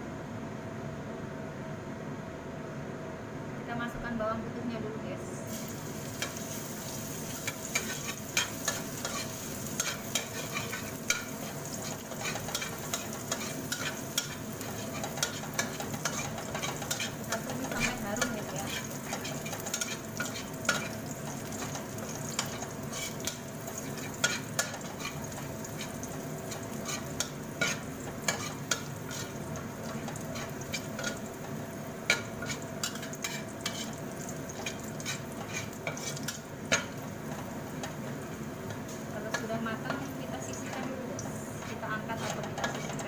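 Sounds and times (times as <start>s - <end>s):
garlic sizzling in hot oil: 5.5s - 43.0s
metal spatula scraping a wok: 6.2s - 34.0s, 34.6s - 38.0s, 41.6s - 43.0s.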